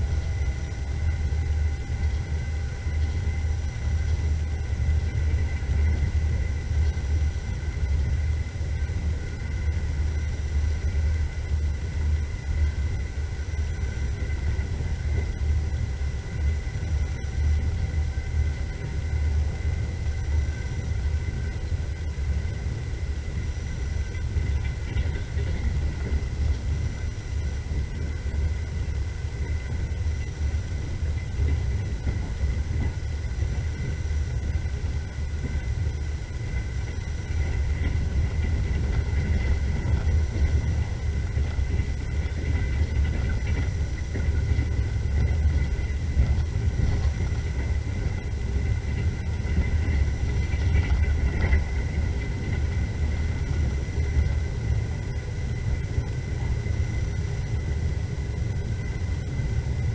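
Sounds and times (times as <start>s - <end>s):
faint high whine: 0.0s - 59.9s
train low rumble: 0.0s - 59.9s.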